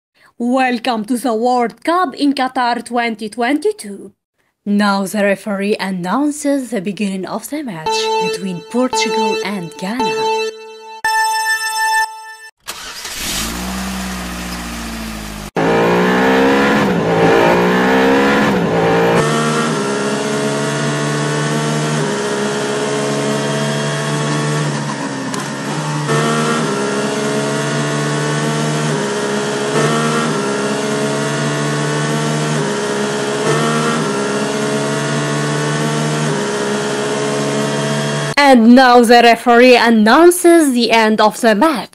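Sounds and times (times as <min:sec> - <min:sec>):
racing car engine revving: 0:12.7 - 0:38.4.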